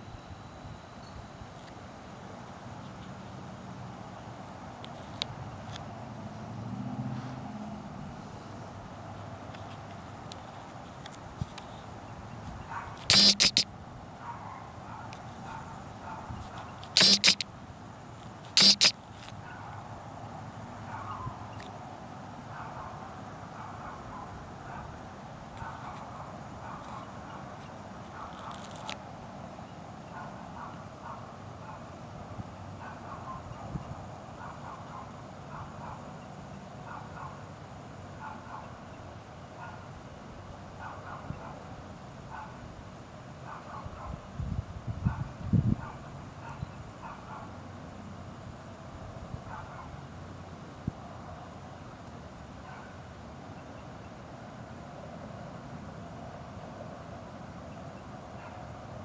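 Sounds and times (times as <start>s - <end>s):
background hiss: 7.1s - 22.6s
short animal calls: 13.1s - 13.7s, 17.0s - 17.5s, 18.6s - 19.0s.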